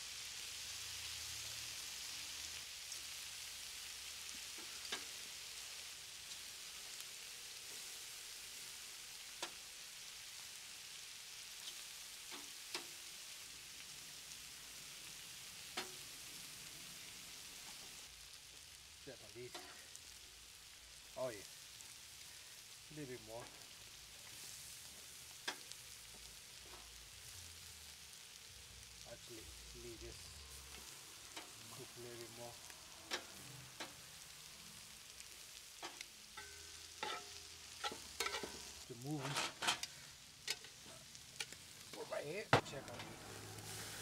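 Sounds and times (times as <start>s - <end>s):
meat sizzling on a grill: 0.0s - 44.0s
metal tongs clicking on grill: 11.6s - 12.9s, 15.8s - 16.0s, 31.3s - 31.6s, 33.1s - 34.0s, 35.8s - 38.7s, 39.3s - 40.8s, 41.4s - 42.0s.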